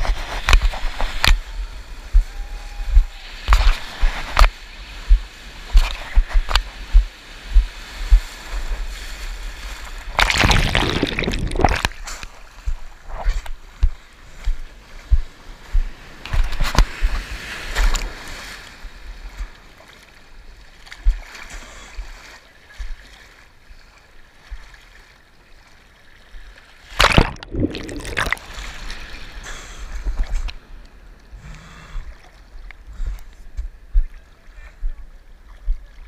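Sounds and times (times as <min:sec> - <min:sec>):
water splashing against camera: 0:00.0 - 0:14.0, 0:26.9 - 0:29.0.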